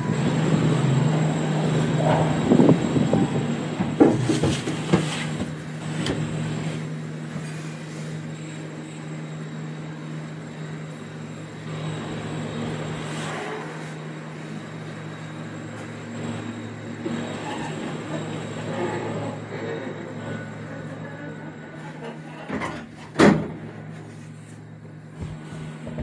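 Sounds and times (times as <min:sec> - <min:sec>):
faint high whine: 0:00.0 - 0:04.0, 0:05.6 - 0:26.0
cable car mechanical hum: 0:00.0 - 0:26.0
clunks and rattles: 0:01.6 - 0:06.3, 0:22.1 - 0:23.6.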